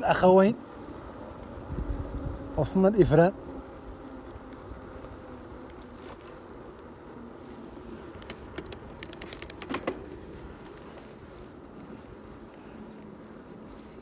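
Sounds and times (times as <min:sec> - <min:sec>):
bicycle tyres rolling on asphalt: 0:00.0 - 0:14.0
wind: 0:00.0 - 0:14.0
light clicks and rattles: 0:07.5 - 0:13.7.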